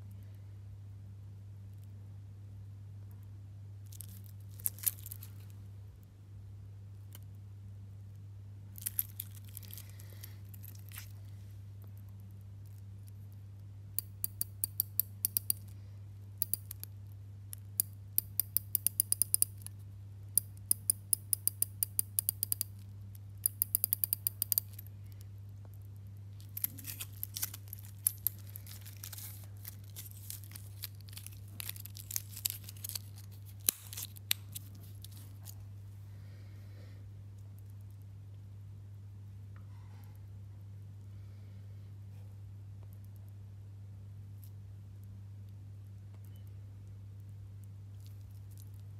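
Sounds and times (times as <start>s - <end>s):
metal bracelet clicks and rattles: 3.9s - 5.5s, 8.8s - 11.2s, 14.0s - 15.7s, 16.4s - 16.9s, 17.6s - 19.8s, 20.4s - 22.8s, 23.4s - 24.9s, 26.4s - 35.6s
watch bezel ratchet clicks: 14.0s - 15.7s, 16.4s - 16.9s, 17.6s - 19.7s, 20.4s - 22.8s, 23.4s - 24.9s.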